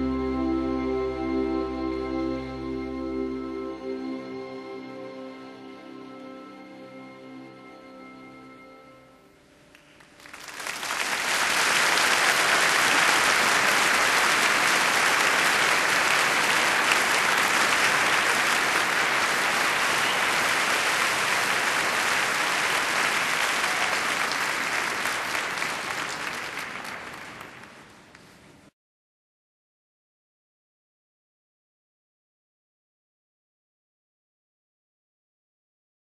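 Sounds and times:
audience applauding: 9.7s - 28.5s.

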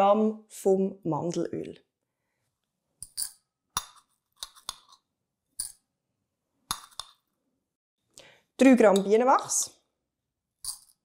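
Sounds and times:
metal spoon clinking on glass: 10.6s - 11.0s.

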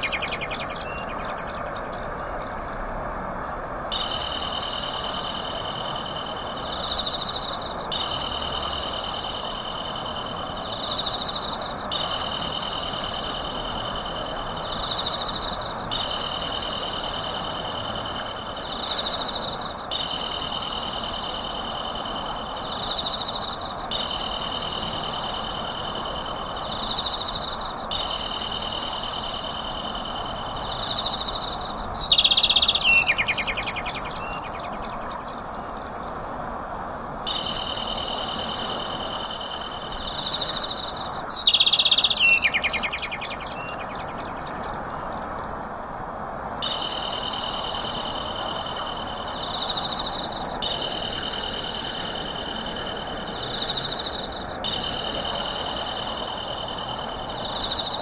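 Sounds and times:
insects and birds chirping: 0.0s - 3.3s, 3.9s - 36.4s, 37.2s - 45.8s, 46.6s - 58.0s
burst of bird chirps: 32.0s - 36.1s.

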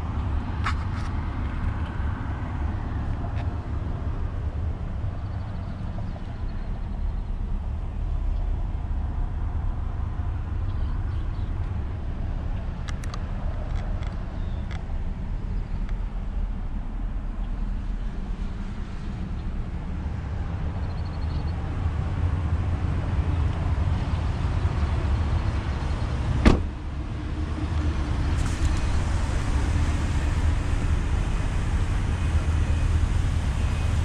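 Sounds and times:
low rumble: 1.2s - 34.0s
truck door slamming: 26.4s - 26.8s.

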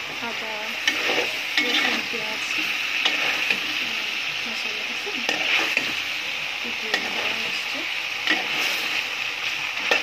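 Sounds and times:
curry sizzling in a pan: 0.0s - 10.0s
utensil clicking against pan: 6.9s - 7.4s, 9.8s - 10.0s.

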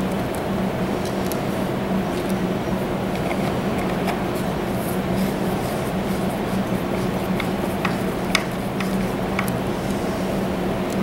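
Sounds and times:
steady low hum: 0.0s - 11.0s
screwdriver clicking on plastic: 7.0s - 9.6s.

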